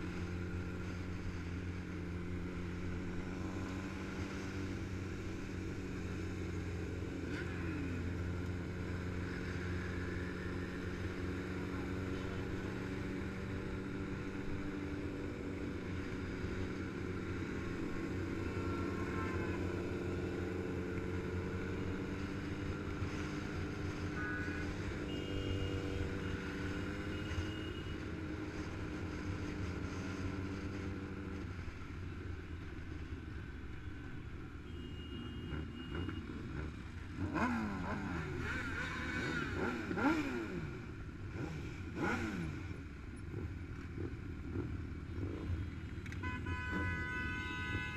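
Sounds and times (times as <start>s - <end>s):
motorcycle engines revving: 0.0s - 47.9s
motorcycle engines running: 0.0s - 47.9s.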